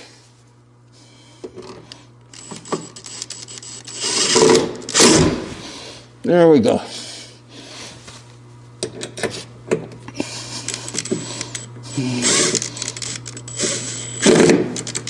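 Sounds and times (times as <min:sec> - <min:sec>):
bit and screw clicks: 0:02.3 - 0:05.0
cordless driver running: 0:10.2 - 0:15.0.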